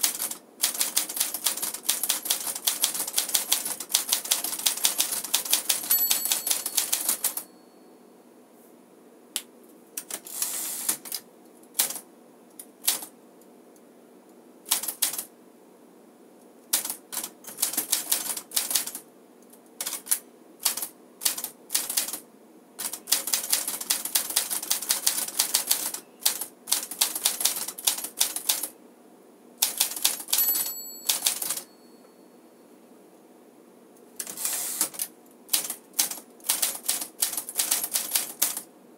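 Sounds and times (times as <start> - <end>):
typewriter margin bell: 4.5 - 7.9, 30.0 - 32.4.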